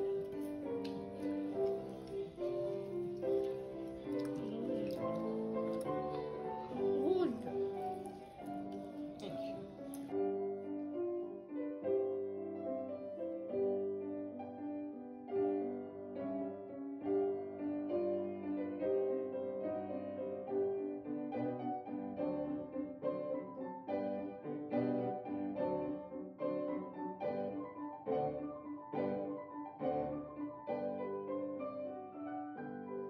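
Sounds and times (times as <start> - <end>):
slow piano melody: 0.0 - 33.0.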